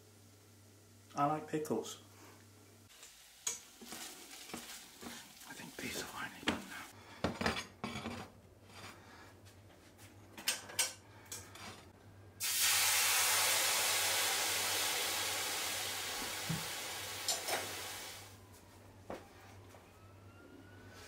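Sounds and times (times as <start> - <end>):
hot frying pan hissing: 12.4 - 18.3.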